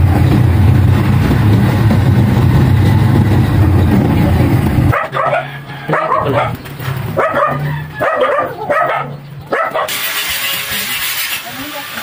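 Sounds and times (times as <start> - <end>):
dog barking: 4.9 - 10.0.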